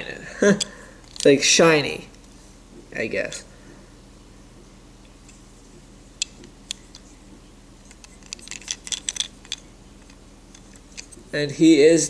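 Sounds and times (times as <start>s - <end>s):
wooden toy clicking and rattling: 0.6s - 1.4s, 6.2s - 7.1s, 7.8s - 11.2s.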